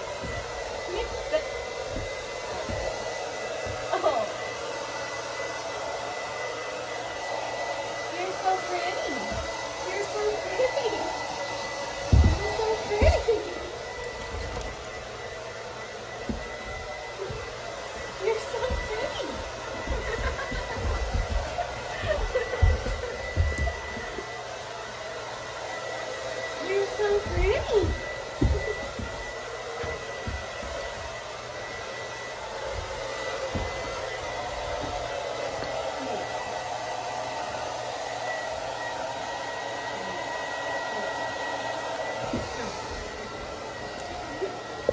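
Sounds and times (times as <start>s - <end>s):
heavy thumps: 0.0s - 4.0s, 11.8s - 15.1s, 16.1s - 24.2s, 27.0s - 31.2s, 32.6s - 35.1s
hair dryer blowing: 0.0s - 44.9s.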